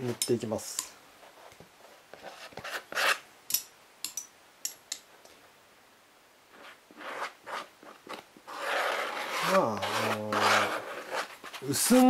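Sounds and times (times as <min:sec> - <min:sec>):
spatula rubbing on foam: 0:06.5 - 0:12.0.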